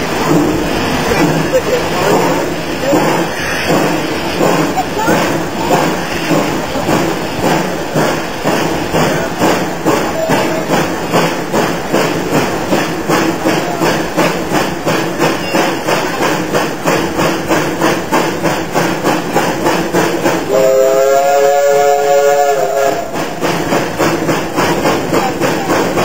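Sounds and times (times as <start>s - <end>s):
steam locomotive chuffing: 0.0s - 26.0s
steam whistle chord: 20.5s - 23.2s.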